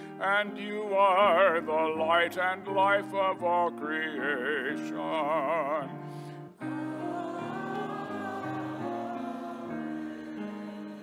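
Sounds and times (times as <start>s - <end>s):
solo voice singing with vibrato: 6.6s - 11.0s
voices singing amen: 6.6s - 11.0s.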